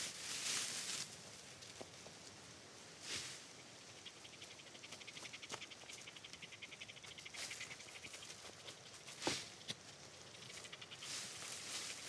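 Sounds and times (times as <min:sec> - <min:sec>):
insect chirring: 0:03.6 - 0:12.0.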